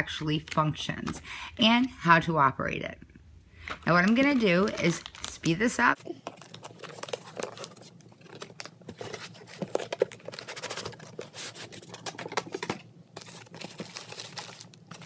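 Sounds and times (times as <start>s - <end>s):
packaging rustling and scraping: 3.7s - 15.0s.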